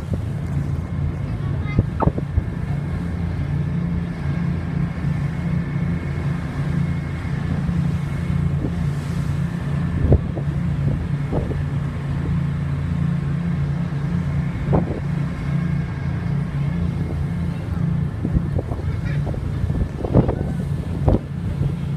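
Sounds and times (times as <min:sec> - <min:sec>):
ship engines droning: 0:00.0 - 0:21.9
wind and wake rushing: 0:00.0 - 0:21.9.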